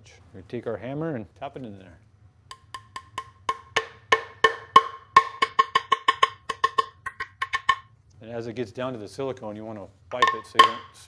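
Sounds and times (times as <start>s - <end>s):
hammer tapping metal: 2.5s - 7.9s, 10.1s - 11.0s.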